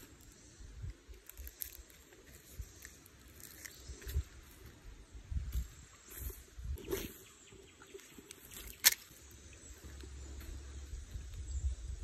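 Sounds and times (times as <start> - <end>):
footsteps on dirt: 8.0 - 11.4.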